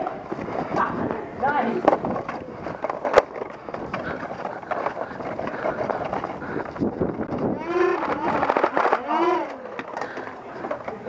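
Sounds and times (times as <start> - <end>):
footsteps on pavement: 0.0 - 8.7.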